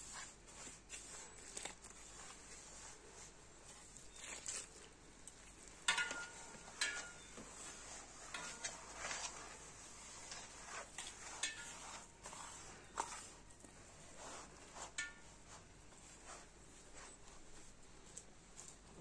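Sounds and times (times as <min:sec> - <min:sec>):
hand rubbing flour in basin: 0:00.0 - 0:04.8, 0:06.2 - 0:19.0.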